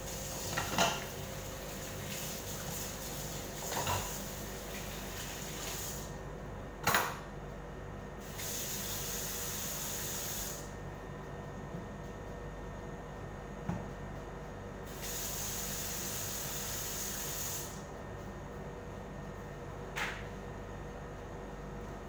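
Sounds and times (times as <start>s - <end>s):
tap running into sink: 3.6s - 4.8s.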